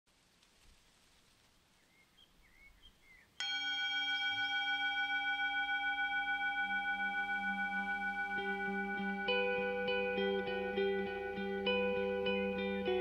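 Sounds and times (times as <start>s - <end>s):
singing bowl ringing: 3.4s - 13.0s.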